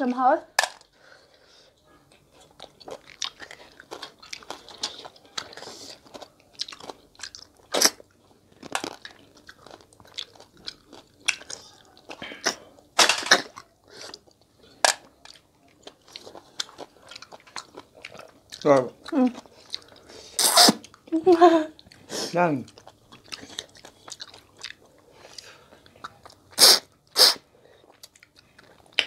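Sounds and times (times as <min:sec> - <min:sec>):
sucking slurps of snails: 0:23.2 - 0:28.1.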